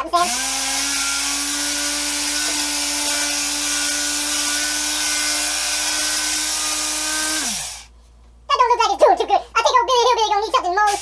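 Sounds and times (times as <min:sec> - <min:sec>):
electric sander whining: 0:00.3 - 0:07.9.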